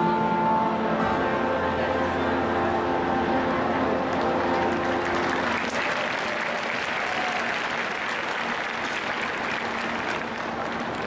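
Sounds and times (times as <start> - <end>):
music: 0.0 - 11.0
audience applauding: 4.0 - 11.0.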